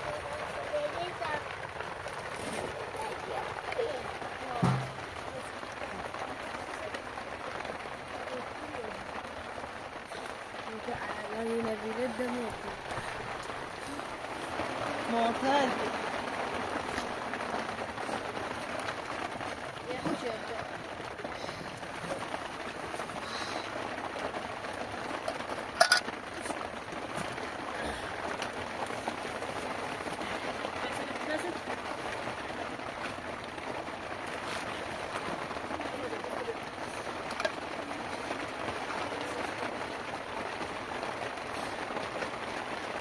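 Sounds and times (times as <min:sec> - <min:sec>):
heavy rain hissing: 0:00.0 - 0:43.0.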